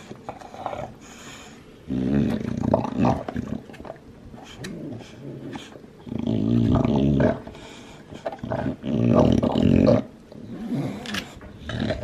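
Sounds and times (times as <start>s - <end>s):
dog gnawing bone: 0.0s - 1.2s
dog growling: 1.8s - 3.8s, 4.6s - 7.5s, 8.2s - 12.0s.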